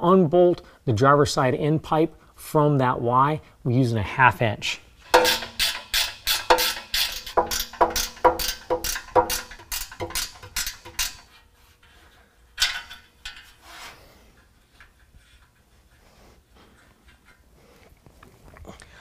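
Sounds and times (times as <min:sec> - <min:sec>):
ratchet wrench clicking: 0:05.1 - 0:11.3
short rattle: 0:05.1 - 0:11.4.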